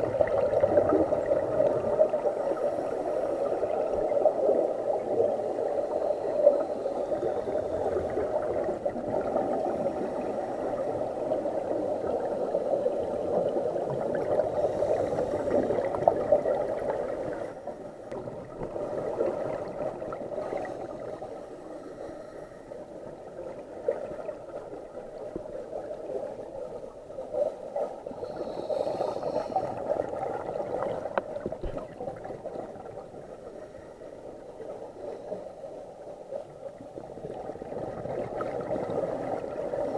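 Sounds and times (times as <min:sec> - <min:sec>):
muffled underwater gurgling: 0:00.0 - 0:22.3
diver breathing bubbles: 0:00.0 - 0:22.9, 0:27.5 - 0:31.9.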